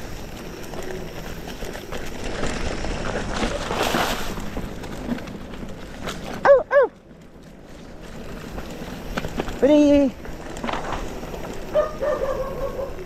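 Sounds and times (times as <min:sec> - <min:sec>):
bike rattles: 0:00.0 - 0:13.0
bike tyres on dirt trail: 0:00.0 - 0:13.0.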